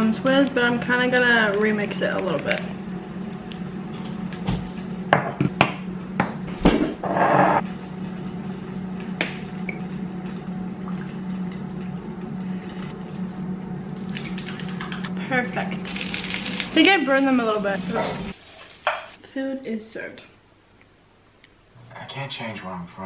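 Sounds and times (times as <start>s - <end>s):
steady low hum: 0.0s - 18.4s.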